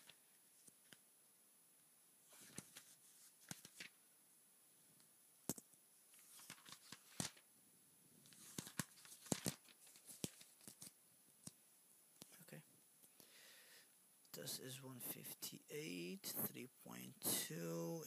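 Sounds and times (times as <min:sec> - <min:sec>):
paper pages rustling: 0:00.0 - 0:01.0, 0:02.3 - 0:04.0, 0:06.1 - 0:07.4, 0:08.2 - 0:11.0
pages snapping over: 0:02.3 - 0:04.0, 0:06.1 - 0:07.4, 0:08.2 - 0:11.6.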